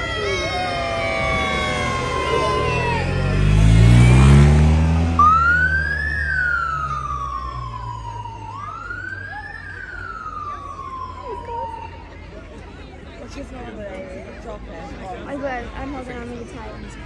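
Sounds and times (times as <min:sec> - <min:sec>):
police siren wailing: 0:00.0 - 0:12.3
car engine revving past: 0:01.0 - 0:08.0.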